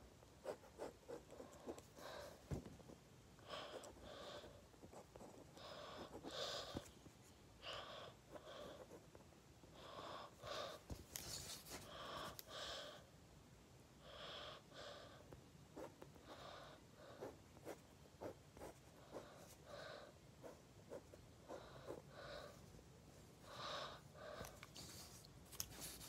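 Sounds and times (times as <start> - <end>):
pencil scratching on paper: 0.4 - 2.3.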